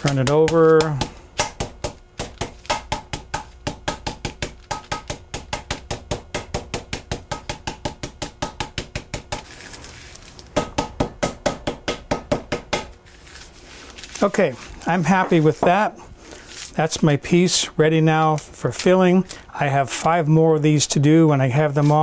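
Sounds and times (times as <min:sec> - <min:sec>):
meat pounder striking meat: 0:00.0 - 0:09.4, 0:10.5 - 0:13.0.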